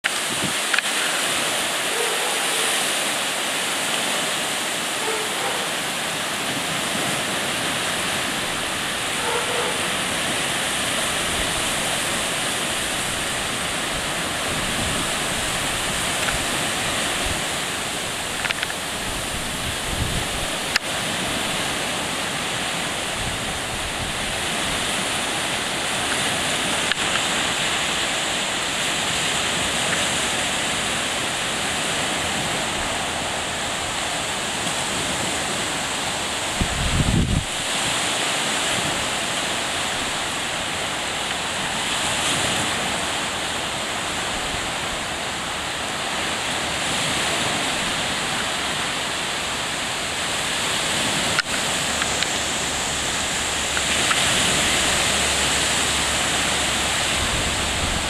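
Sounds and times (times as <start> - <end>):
lake waves breaking: 0.0 - 58.0
wind blowing: 0.0 - 58.0
wind thumps on microphone: 0.1 - 0.8, 36.6 - 37.6.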